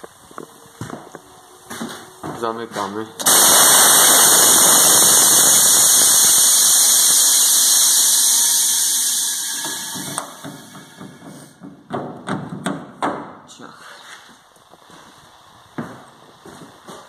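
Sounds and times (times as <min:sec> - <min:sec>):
compressed air hissing: 0:03.2 - 0:11.6.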